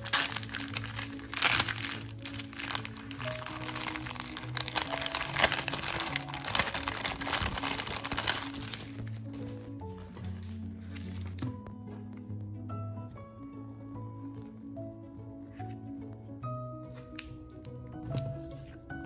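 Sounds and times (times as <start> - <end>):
plastic bag crinkling: 0.0 - 9.6
background music low notes: 0.0 - 19.0.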